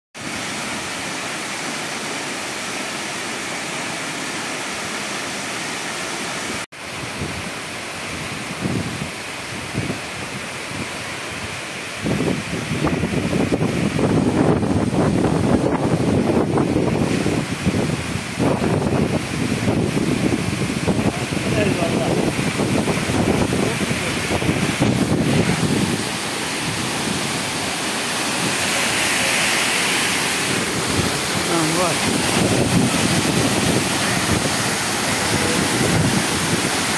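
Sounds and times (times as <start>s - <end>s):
waterfall rushing: 0.2s - 36.9s
wind buffeting microphone: 6.9s - 29.0s, 30.0s - 36.9s.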